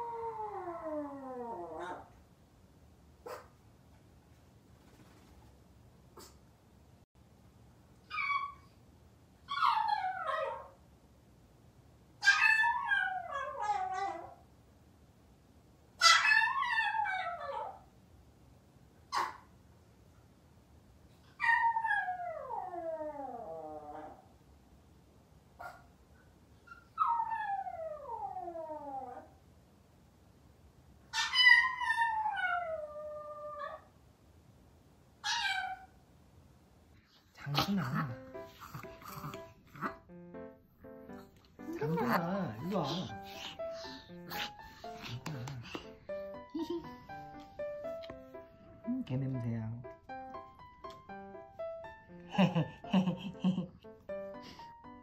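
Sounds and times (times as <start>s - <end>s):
dog whining: 8.1s - 8.7s, 9.5s - 10.7s, 26.7s - 29.3s, 35.2s - 35.9s, 37.4s - 40.0s, 41.6s - 45.9s.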